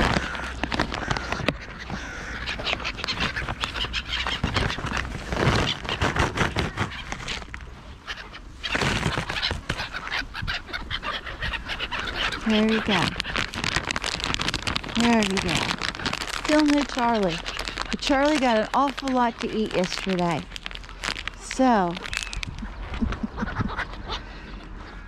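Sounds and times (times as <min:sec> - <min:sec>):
plastic bag crinkling: 0:00.0 - 0:01.6, 0:02.5 - 0:07.6, 0:08.7 - 0:09.8, 0:12.4 - 0:23.3
gulls calling: 0:00.0 - 0:25.0.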